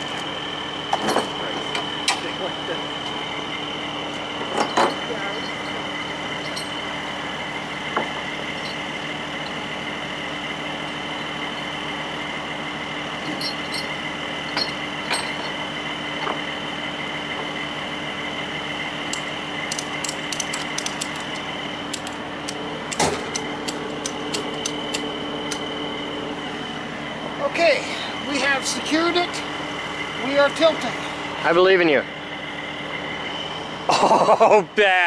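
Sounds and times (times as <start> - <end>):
truck engine idling with whine: 0.0 - 35.0
ratchet strap clicking: 19.1 - 25.7.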